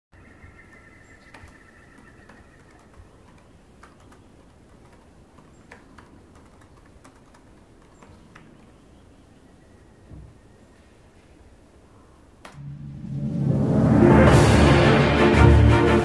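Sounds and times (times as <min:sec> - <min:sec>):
typing on laptop keyboard: 0:01.3 - 0:08.7.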